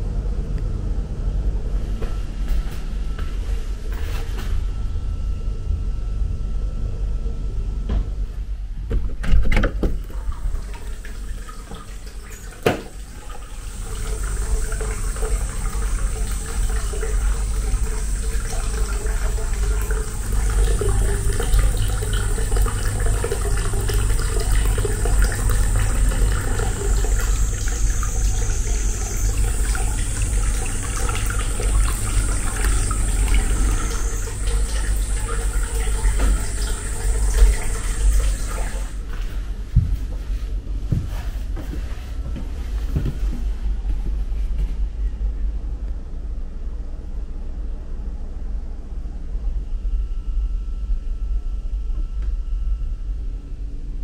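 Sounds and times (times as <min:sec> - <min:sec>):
water pouring into a tub: 0:10.1 - 0:39.0.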